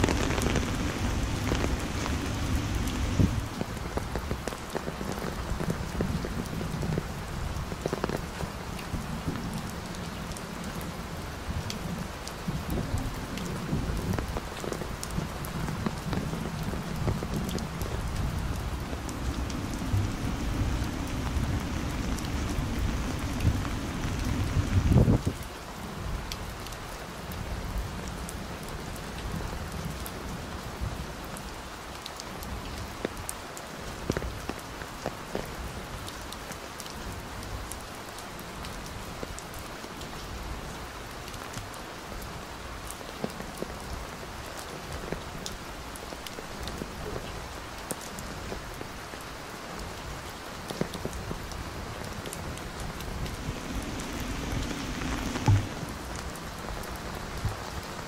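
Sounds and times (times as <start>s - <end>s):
heavy rain falling: 0.0s - 58.0s
raindrops ticking close by: 0.0s - 58.0s.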